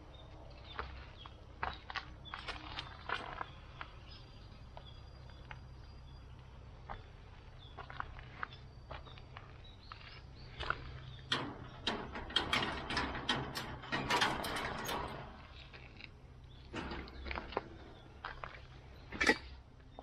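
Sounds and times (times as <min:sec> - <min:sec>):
chain-link mesh rattling: 0:10.5 - 0:19.6
metal gate latch clanking: 0:10.6 - 0:15.9, 0:16.6 - 0:19.6.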